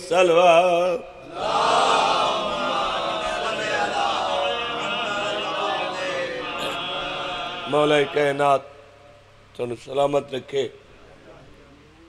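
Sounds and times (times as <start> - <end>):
congregation chanting together: 0.0 - 9.2.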